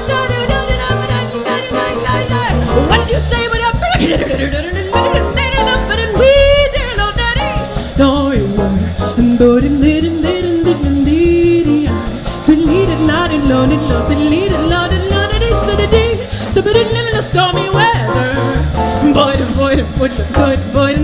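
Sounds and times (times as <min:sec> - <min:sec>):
drums: 0:00.0 - 0:21.0
piano: 0:00.0 - 0:21.0
upright bass: 0:00.0 - 0:21.0.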